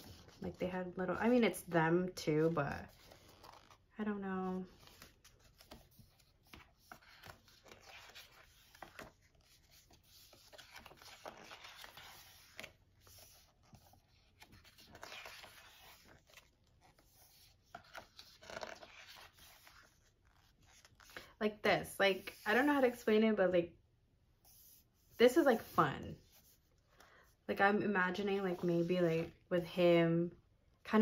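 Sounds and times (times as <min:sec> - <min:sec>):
glossy pages turning: 0:00.0 - 0:00.4, 0:02.4 - 0:03.9, 0:04.7 - 0:21.3.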